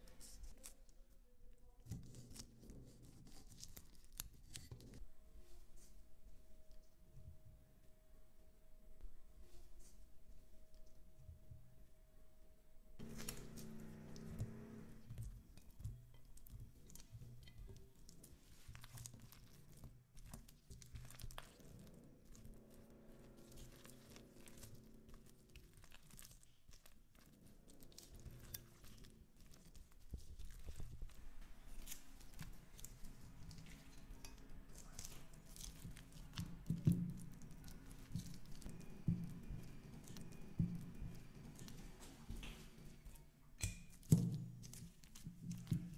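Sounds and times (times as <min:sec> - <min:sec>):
spatula stirring wet mixture: 0:13.0 - 0:45.9.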